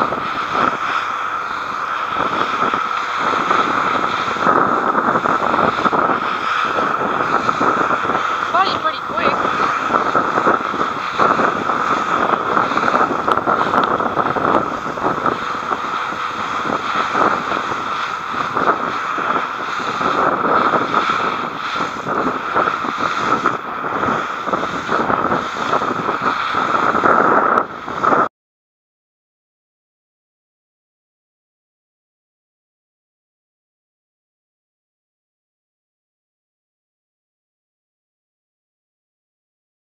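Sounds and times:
bow spray and hull through water: 0.0 - 28.3
wind buffeting microphone: 0.0 - 28.3.

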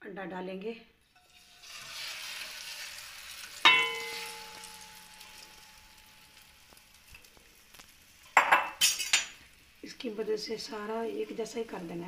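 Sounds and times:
batter sizzling in pan: 1.0 - 12.0
glass bowl clanging on pan: 3.6 - 6.1, 8.4 - 9.4.

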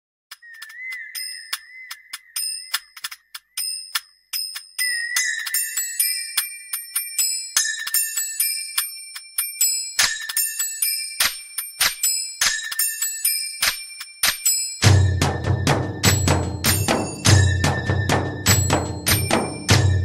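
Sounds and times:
bell-like strikes: 14.2 - 20.0.

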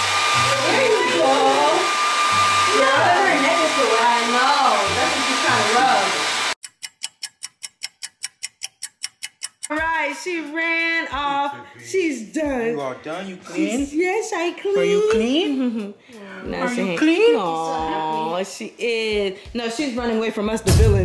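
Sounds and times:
music: 0.0 - 1.7, 2.3 - 6.2, 9.6 - 21.0
hair dryer blowing: 0.0 - 6.6
rapid clock ticking: 6.6 - 10.2.

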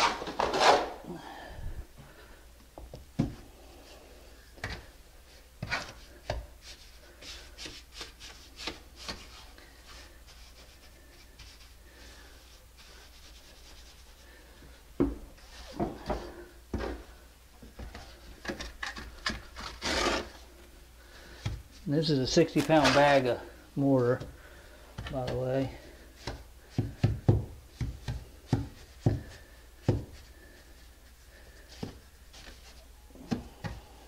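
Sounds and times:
trowel scraping wet mortar: 19.6 - 20.4.

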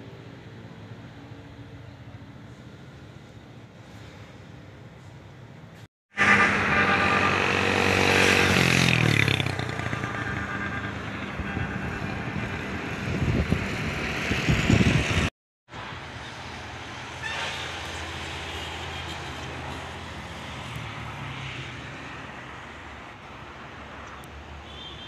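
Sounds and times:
steady engine hum: 4.7 - 15.3
vehicle passing close: 6.2 - 15.3.

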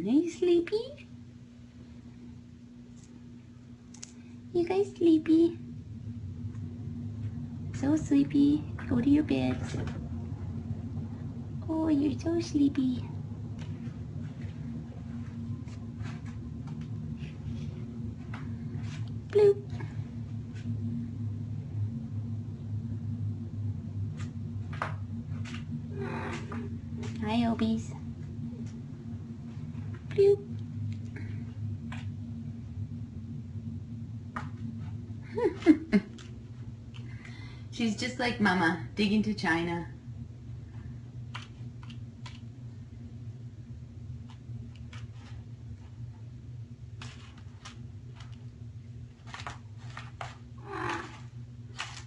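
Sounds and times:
steady low hum: 0.0 - 52.0
kitten scratching in cat litter: 13.6 - 19.4, 44.3 - 46.1, 46.9 - 52.0
cat purring: 24.2 - 32.1, 49.2 - 52.0.

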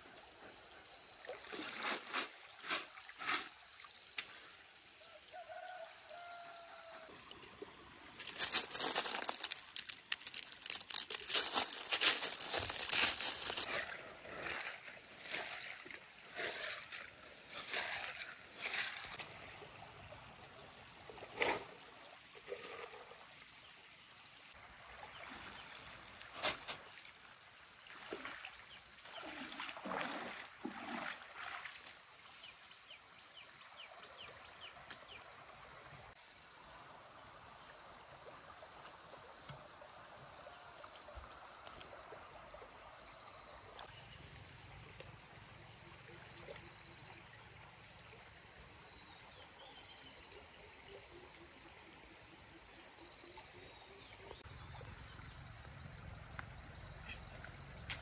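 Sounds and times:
faint stream ambience: 0.0 - 58.0
splashing wading steps: 8.2 - 19.2
basket sloshing in water: 29.2 - 31.7.

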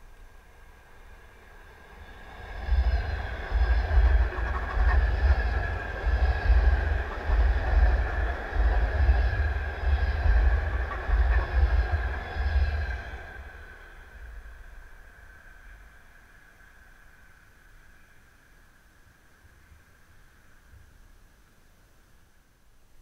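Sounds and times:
train rumble: 0.0 - 22.3
train wheels clattering: 1.7 - 14.7.

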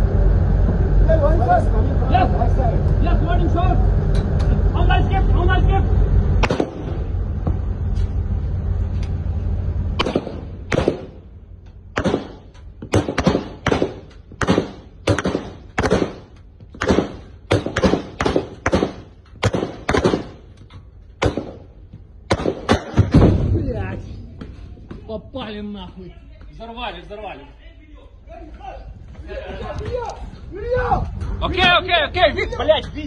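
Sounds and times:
steady low rumble: 0.0 - 33.0
single gunshots: 6.4 - 7.0, 10.0 - 11.2, 11.9 - 20.5, 21.2 - 21.7, 22.3 - 23.6.

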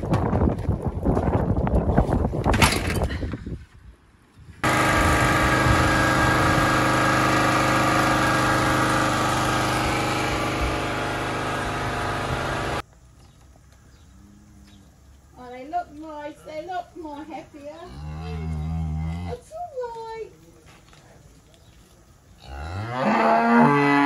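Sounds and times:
portable generator running: 4.6 - 12.8.

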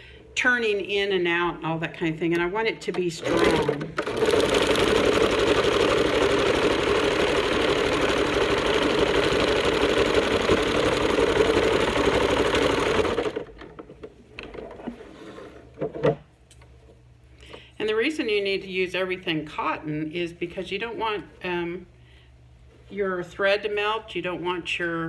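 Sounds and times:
electric sewing machine running: 3.2 - 13.6.

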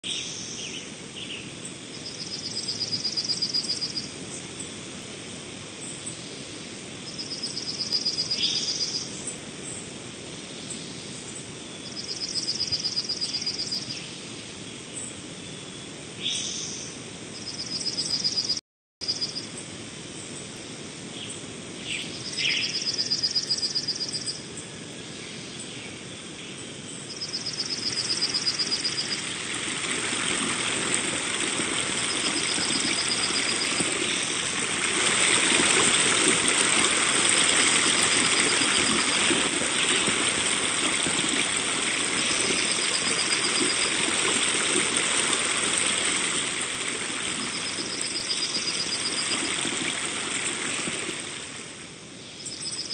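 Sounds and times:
running water: 27.2 - 52.8.

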